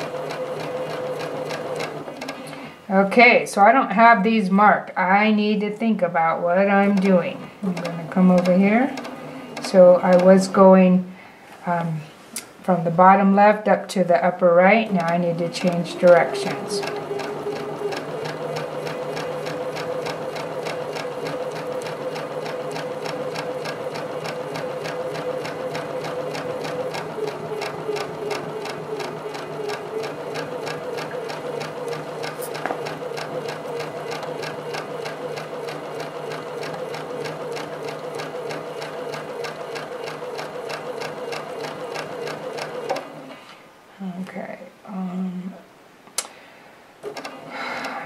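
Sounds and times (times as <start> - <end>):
sewing machine running: 0.0 - 2.7, 6.6 - 10.6, 14.7 - 43.4, 47.0 - 48.0.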